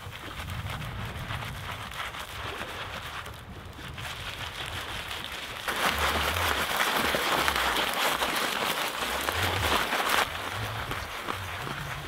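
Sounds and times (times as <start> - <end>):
dry grass rubbed crackling: 0.0 - 12.0.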